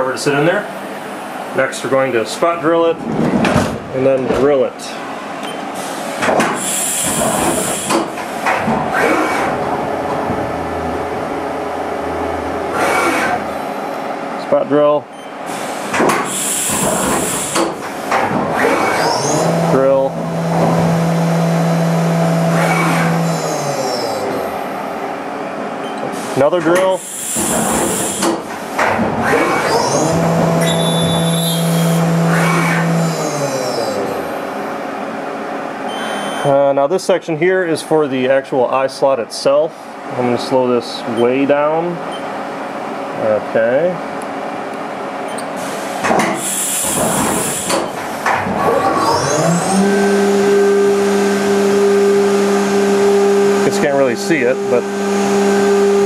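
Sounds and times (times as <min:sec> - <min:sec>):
mechanical clunks and whirs: 0:03.0 - 0:04.6, 0:05.4 - 0:14.4, 0:15.1 - 0:24.6, 0:25.5 - 0:34.3, 0:45.2 - 0:54.0
sharp hiss of air: 0:05.8 - 0:08.4, 0:15.6 - 0:17.7, 0:27.0 - 0:28.4, 0:45.6 - 0:47.9
cnc mill drilling whine: 0:06.6 - 0:14.4, 0:16.3 - 0:24.9, 0:27.0 - 0:28.4, 0:29.2 - 0:34.6, 0:46.3 - 0:56.0
low spindle hum: 0:08.7 - 0:14.5.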